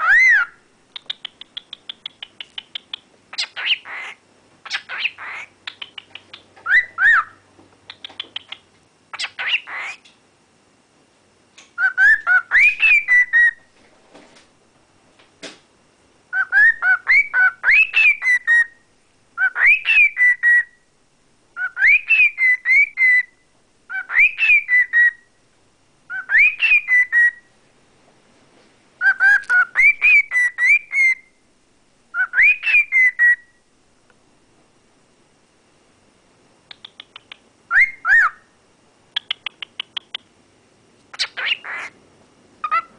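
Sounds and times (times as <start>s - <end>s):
cockatiel whistling a tune: 0.0s - 0.6s, 2.7s - 7.4s, 11.8s - 13.6s, 16.3s - 18.8s, 19.4s - 20.8s, 21.6s - 23.3s, 23.9s - 25.3s, 26.1s - 27.5s, 29.0s - 31.3s, 32.1s - 33.6s, 37.7s - 38.4s
scratchy bird chirps: 41.1s - 42.0s.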